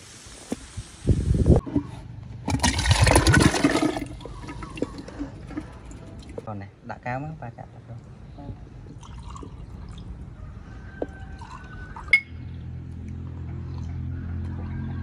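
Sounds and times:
liquid pouring into glass: 8.9s - 10.1s, 11.4s - 12.2s.

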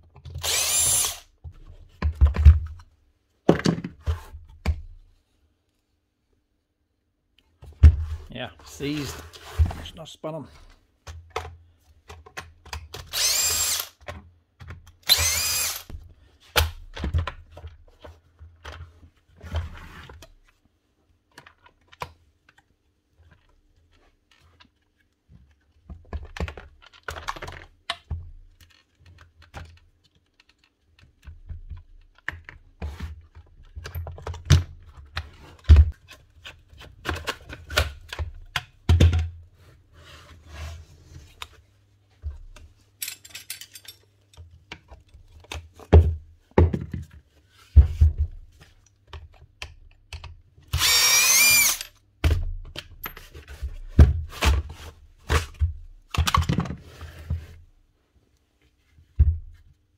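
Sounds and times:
cordless drill running: 0.4s - 1.3s, 13.1s - 14.0s, 15.1s - 15.9s, 50.8s - 51.9s.

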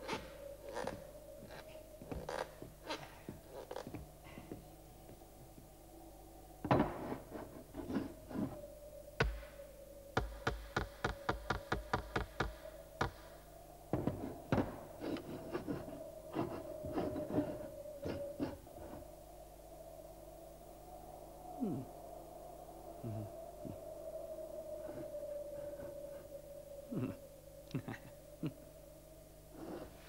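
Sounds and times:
knocks and taps on wood: 10.2s - 13.2s.

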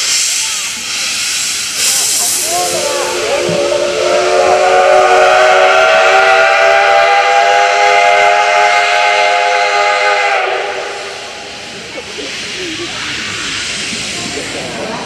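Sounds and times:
steam hissing: 0.0s - 15.0s
steam locomotive whistle: 2.2s - 11.5s.

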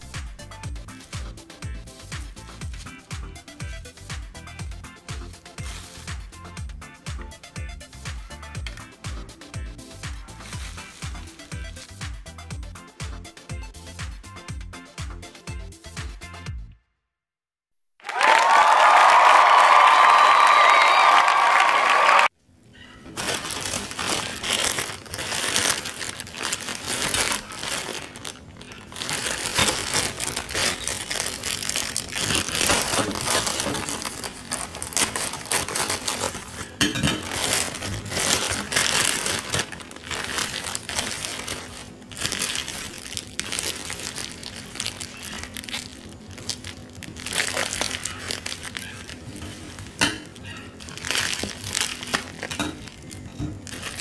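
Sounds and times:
plastic crinkling and tearing: 5.4s - 6.2s, 10.0s - 12.0s, 23.0s - 54.0s.

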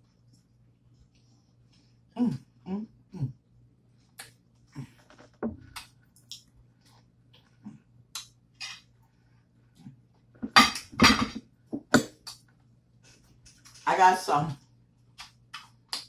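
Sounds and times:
dishes and utensils clinking: 10.5s - 11.4s.

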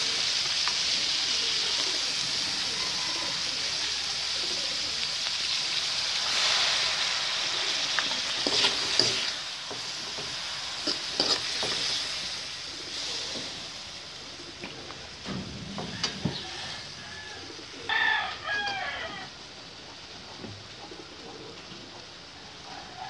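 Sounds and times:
greens sizzling in a wok: 0.0s - 20.1s, 21.1s - 23.0s
metal spoon scraping and clicking: 10.8s - 11.7s.

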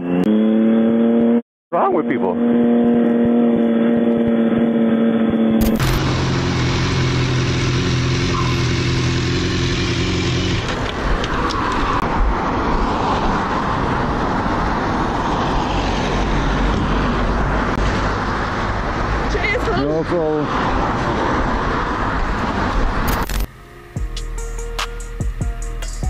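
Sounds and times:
road and wind noise: 0.0s - 25.6s
vehicle engine humming: 2.0s - 26.0s
vehicle passing: 5.7s - 24.0s.

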